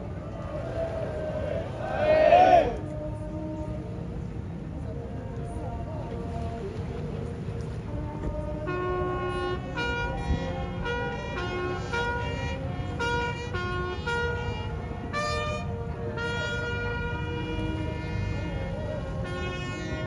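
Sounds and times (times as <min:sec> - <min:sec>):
wind instrument melody: 0:08.6 - 0:20.0.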